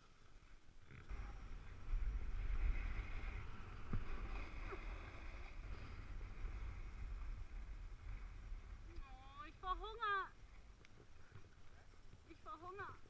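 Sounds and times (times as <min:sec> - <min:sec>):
wind rumbling on microphone: 0:00.8 - 0:13.0
snowboard scraping over snow: 0:01.0 - 0:09.9.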